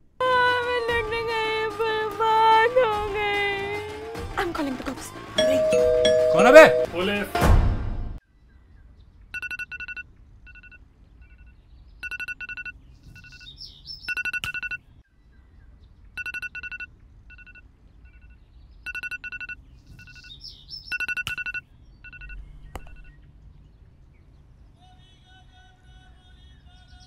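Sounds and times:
phone ringtone beeping: 0:05.4 - 0:07.0, 0:09.4 - 0:10.8, 0:12.0 - 0:13.5, 0:14.1 - 0:14.8, 0:16.2 - 0:23.2.

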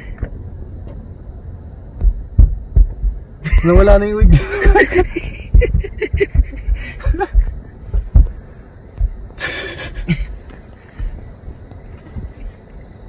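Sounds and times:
low thumps: 0:01.9 - 0:09.4
stifled laughter: 0:03.4 - 0:07.6, 0:09.4 - 0:10.4
breathy rush: 0:04.9 - 0:11.3.

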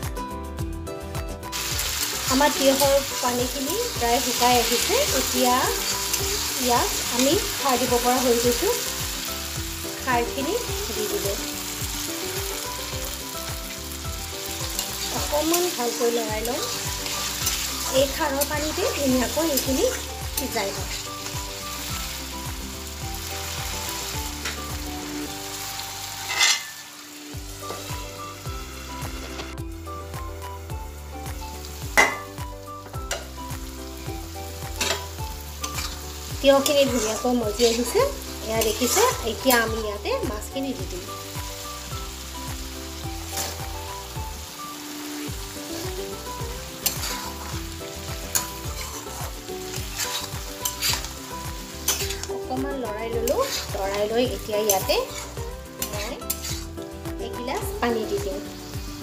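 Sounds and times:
background music with steady beat: 0:00.0 - 0:59.0
cucumber sizzling in a pan: 0:01.5 - 0:59.0
metal lid clattering onto pan: 0:26.3 - 0:26.8.

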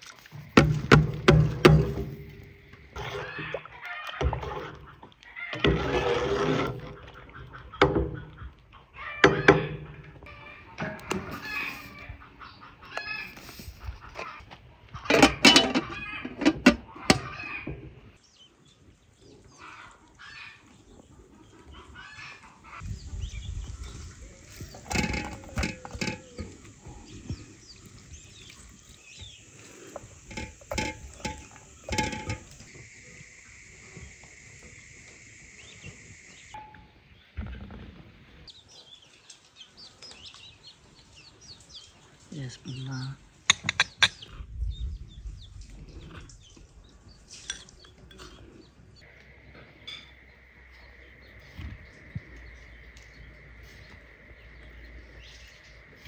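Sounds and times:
chickens clucking: 0:00.3 - 0:05.8, 0:06.7 - 0:18.2, 0:19.2 - 0:42.5, 0:43.4 - 0:44.5
high-pitched hiss: 0:26.4 - 0:36.5.

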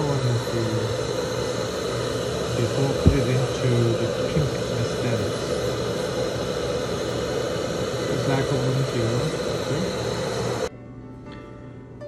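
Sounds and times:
steady mechanical drone: 0:00.0 - 0:10.7
low thump: 0:03.0 - 0:03.3
faint background music: 0:10.7 - 0:12.0.

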